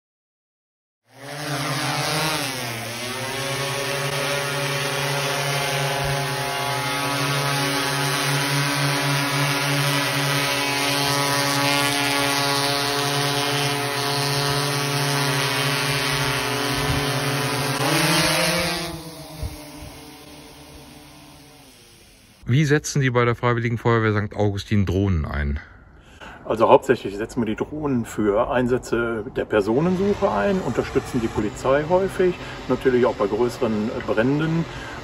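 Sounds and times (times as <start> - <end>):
drone rotors buzzing hum: 1.1 - 22.4, 29.6 - 35.0.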